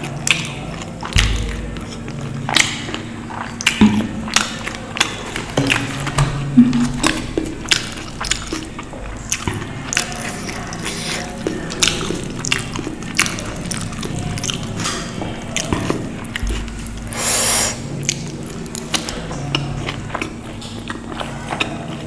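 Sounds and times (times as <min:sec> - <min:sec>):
wet chewing: 0:00.0 - 0:22.0
short breathy rush: 0:17.1 - 0:17.8.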